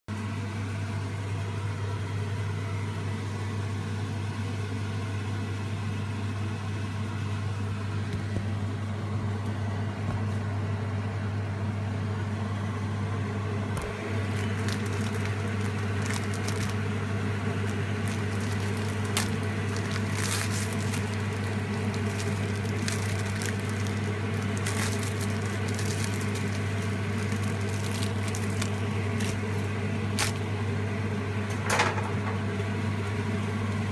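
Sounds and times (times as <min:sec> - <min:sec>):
microwave oven humming: 0:00.1 - 0:33.9
crackles and clicks: 0:13.8 - 0:30.5.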